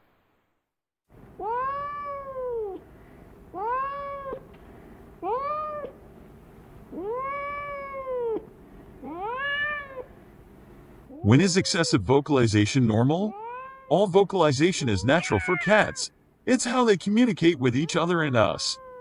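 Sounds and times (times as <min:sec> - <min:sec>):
cat meowing: 0:01.4 - 0:02.8, 0:03.5 - 0:04.4, 0:05.2 - 0:06.0, 0:06.9 - 0:10.1, 0:13.3 - 0:14.0, 0:14.6 - 0:16.1, 0:17.5 - 0:19.0.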